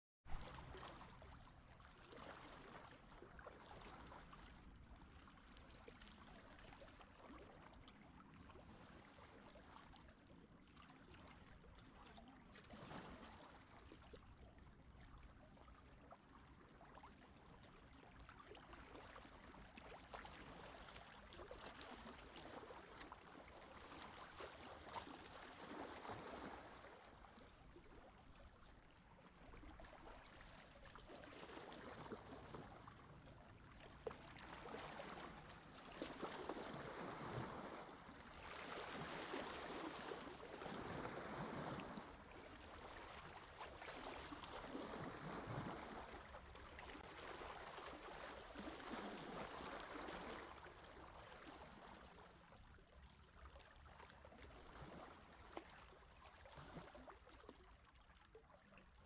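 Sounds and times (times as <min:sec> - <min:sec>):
gentle sea waves lapping: 0:00.3 - 0:59.0.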